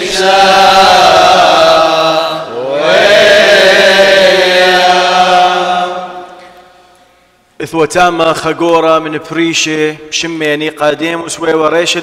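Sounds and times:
man singing liturgical chant: 0:00.0 - 0:06.4.

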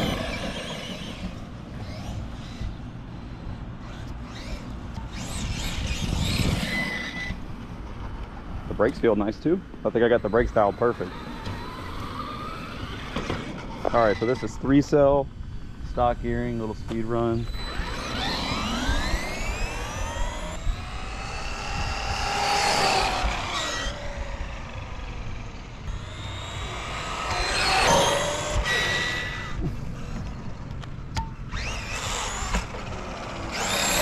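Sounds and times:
rc truck motor whine: 0:00.0 - 0:34.0.

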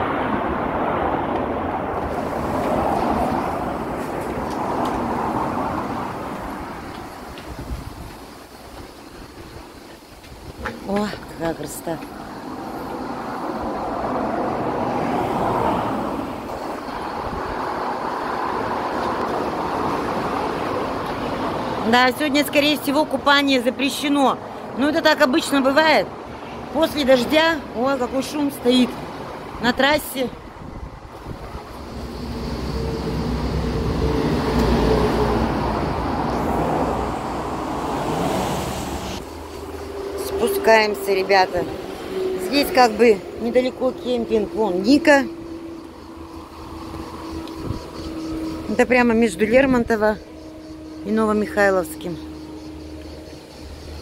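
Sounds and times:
tyre noise on wet road: 0:00.0 - 0:22.0, 0:30.4 - 0:49.0
highway traffic passing: 0:00.0 - 0:54.0.

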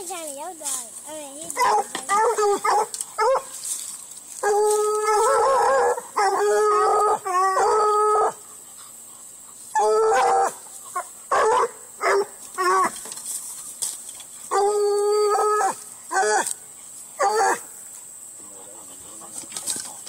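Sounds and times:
hound baying: 0:01.5 - 0:03.6, 0:04.4 - 0:13.0, 0:14.4 - 0:16.6, 0:17.2 - 0:17.7
dog barking: 0:01.6 - 0:03.5, 0:11.3 - 0:12.3.

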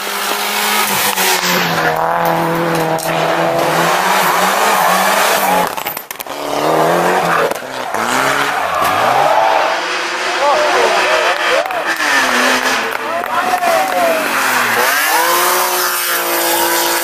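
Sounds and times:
rally car engines revving: 0:00.0 - 0:17.0.

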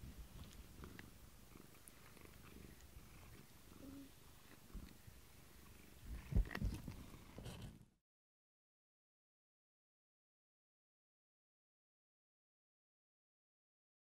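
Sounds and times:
cat purring: 0:00.3 - 0:07.8.

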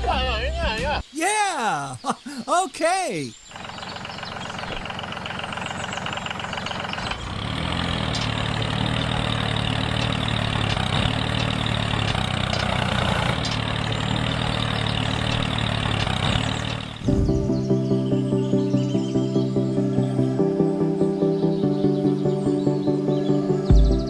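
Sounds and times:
toy tractor motor humming: 0:03.5 - 0:17.1.

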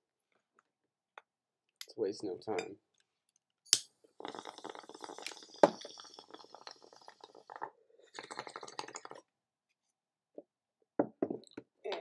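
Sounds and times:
butane torch lighter hissing: 0:03.7 - 0:07.2
water bubbling in a glass bong: 0:04.2 - 0:09.3.

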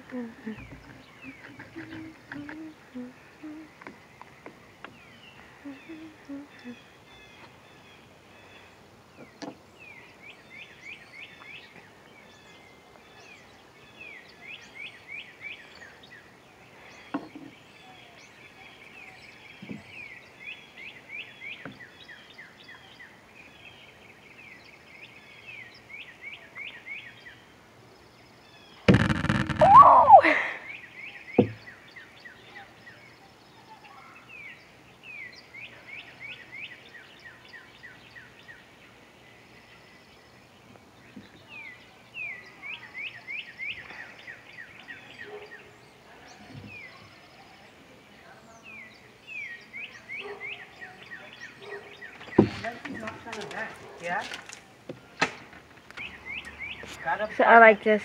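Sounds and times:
songbird singing: 0:00.0 - 0:58.0
loud sudden noise: 0:28.9 - 0:30.3.

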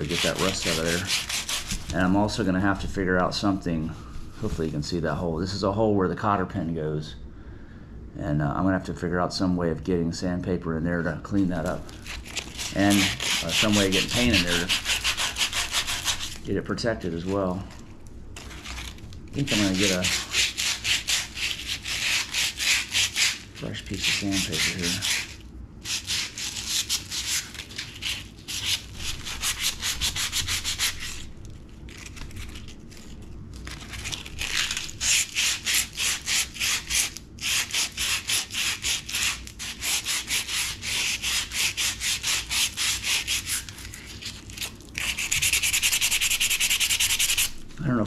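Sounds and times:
sandpaper scrubbing rusty metal: 0:00.0 - 0:02.4, 0:12.4 - 0:16.4, 0:19.4 - 0:31.3, 0:34.0 - 0:44.3, 0:45.0 - 0:47.6.

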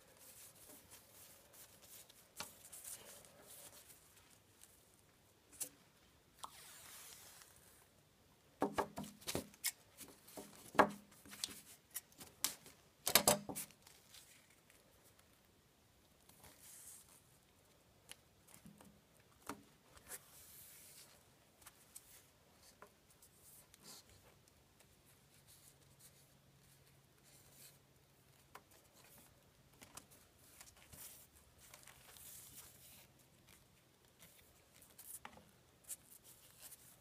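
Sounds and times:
hands rolling dowel on tape: 0:08.6 - 0:14.0.

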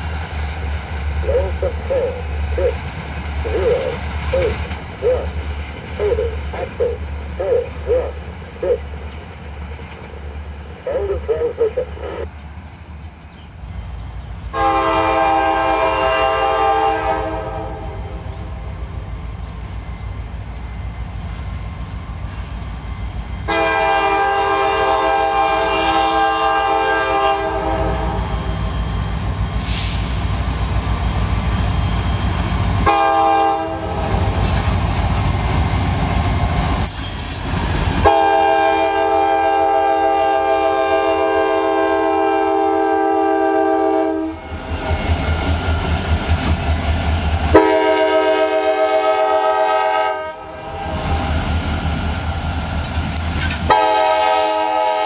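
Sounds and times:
train rumbling past: 0:00.0 - 0:55.0
locomotive air horn: 0:14.5 - 0:18.3, 0:23.4 - 0:28.4, 0:32.8 - 0:34.5, 0:38.0 - 0:44.5, 0:47.5 - 0:51.2, 0:53.7 - 0:55.0.

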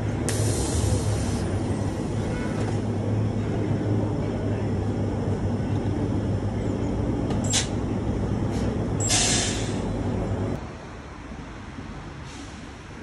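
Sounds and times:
traffic engine rumble: 0:00.0 - 0:13.0
sharp air hisses: 0:00.3 - 0:01.6, 0:08.5 - 0:09.9, 0:12.2 - 0:12.8.

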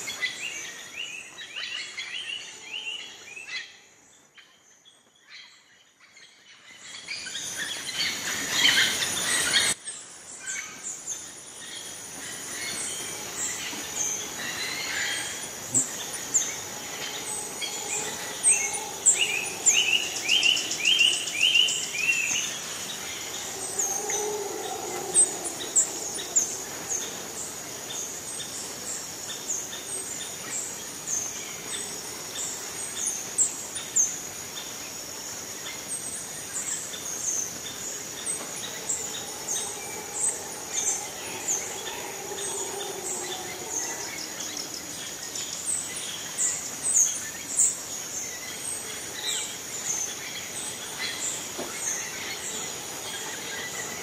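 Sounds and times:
high insect drone: 0:07.4 - 0:54.0
birds chirping and calling: 0:10.4 - 0:34.2, 0:36.0 - 0:54.0.

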